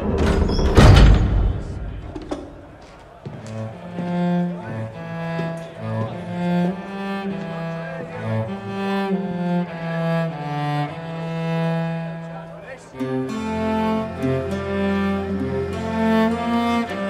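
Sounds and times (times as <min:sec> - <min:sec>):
slow low cello music: 0:03.4 - 0:17.0.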